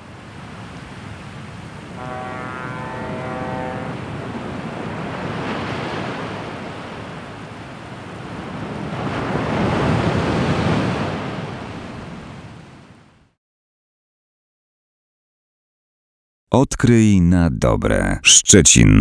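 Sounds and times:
waves breaking on a beach: 0.0 - 13.3
wind: 0.0 - 13.3.

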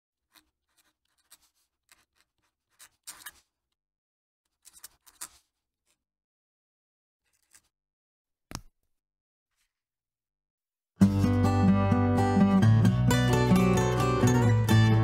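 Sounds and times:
pen nib scratching on paper: 0.3 - 3.6, 4.5 - 5.6.

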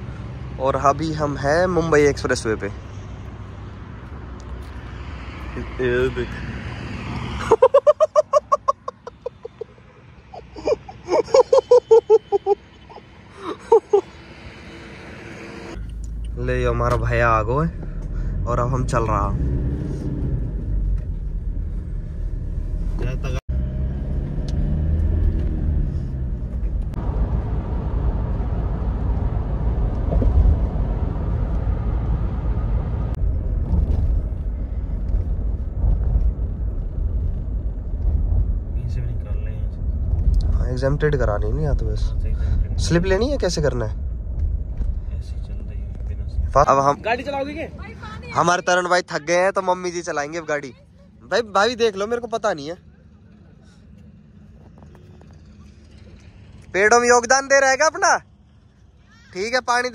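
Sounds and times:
car engine: 0.0 - 59.9
road and wind noise: 0.0 - 59.9
high-pitched rhythmic laughter: 7.5 - 14.1.

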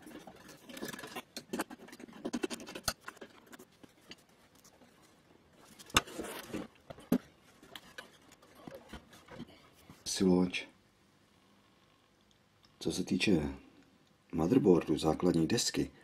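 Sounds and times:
metal chassis scratching and clicking: 0.0 - 4.9
metal scraping on wood: 0.0 - 9.9.

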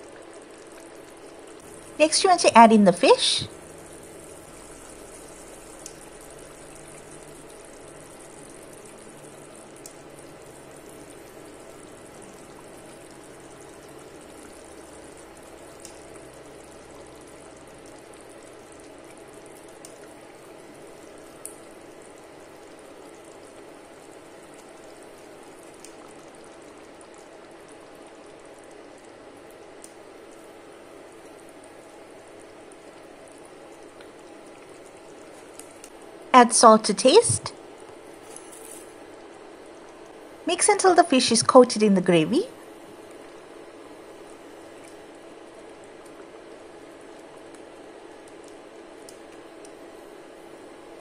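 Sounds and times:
gravy simmering in a pan: 0.0 - 36.8, 37.5 - 41.8, 42.5 - 51.0.

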